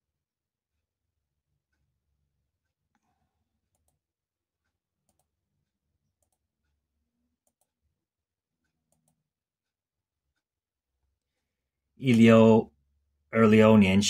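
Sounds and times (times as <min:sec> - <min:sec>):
computer mouse clicks: 0:02.9 - 0:04.1, 0:05.0 - 0:05.4, 0:06.1 - 0:06.8, 0:07.4 - 0:07.8, 0:08.6 - 0:09.3.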